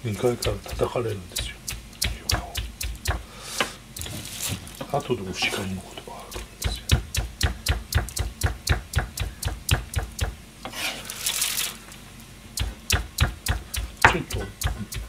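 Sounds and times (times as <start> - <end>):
knife chopping on plastic cutting board: 0.1 - 4.6, 6.3 - 11.0, 12.6 - 15.0.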